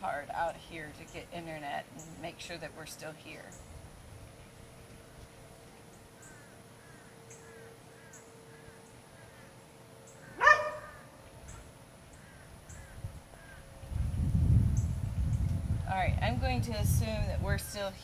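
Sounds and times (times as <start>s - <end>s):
dog barking: 10.4s - 11.0s.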